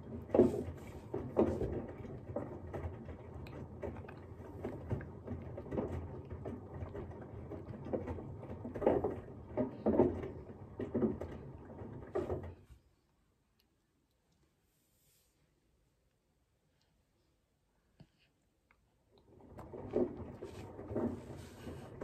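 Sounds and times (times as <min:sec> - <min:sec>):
washing machine running: 0:00.0 - 0:12.7, 0:19.2 - 0:22.0.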